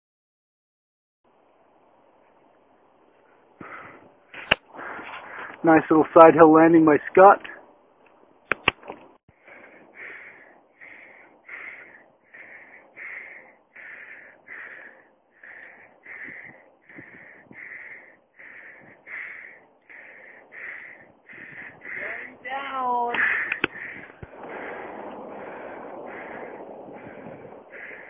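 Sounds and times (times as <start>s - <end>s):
man panting hard: 3.6s - 5.6s, 9.3s - 28.0s
sharp clicks: 8.0s - 9.1s, 23.1s - 24.3s.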